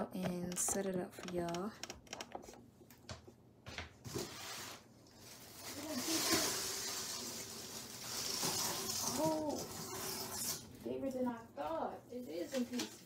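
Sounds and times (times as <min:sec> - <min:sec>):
plastic branches rustling: 0:05.2 - 0:10.0.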